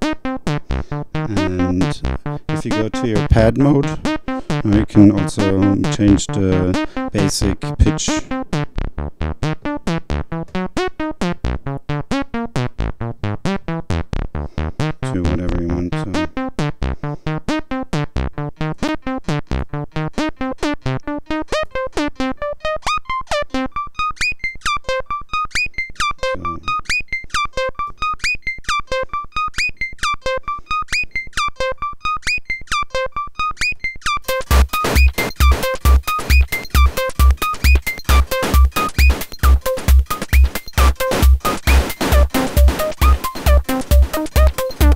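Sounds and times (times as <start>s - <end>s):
synthesizer playing short notes: 34.3s - 44.9s.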